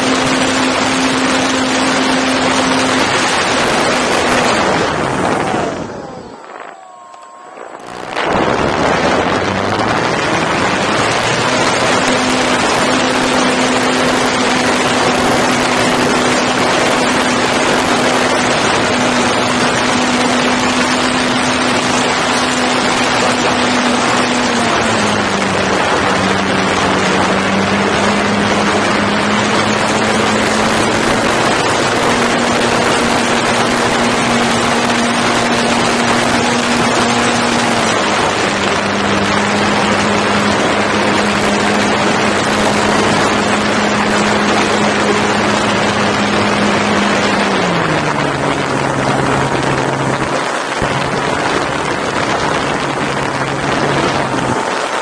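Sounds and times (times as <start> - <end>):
model airplane motor and propeller drone: 0.0 - 55.0
rush of wind: 0.0 - 55.0.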